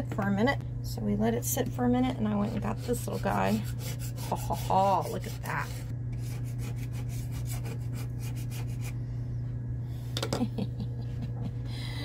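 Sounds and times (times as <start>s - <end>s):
low hum: 0.0s - 12.0s
razor blade scraping wood: 2.3s - 8.9s.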